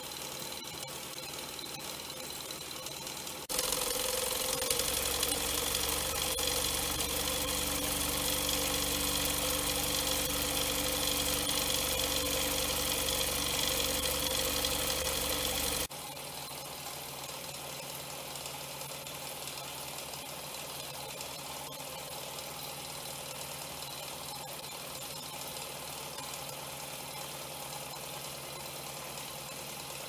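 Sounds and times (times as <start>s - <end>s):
toy steam engine hissing and whirring: 3.4s - 17.3s.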